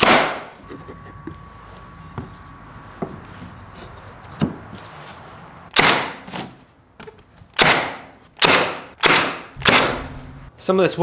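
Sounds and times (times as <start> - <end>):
nail gun shots: 0.0 - 0.5, 5.7 - 6.5, 7.6 - 10.2.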